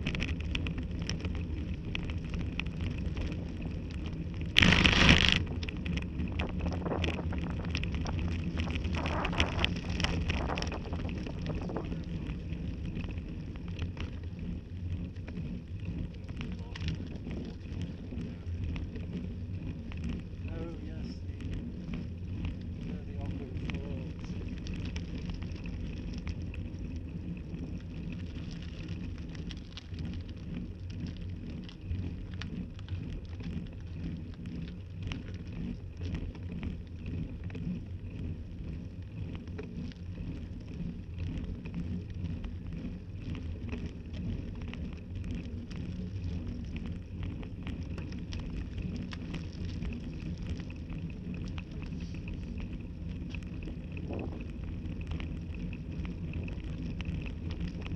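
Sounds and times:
small rattling clicks: 0.0s - 12.1s
bicycle tyres rumbling on road: 0.0s - 57.9s.

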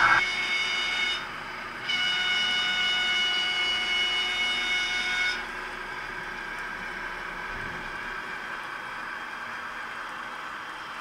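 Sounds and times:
high-pitched electronic tone: 0.0s - 1.3s.

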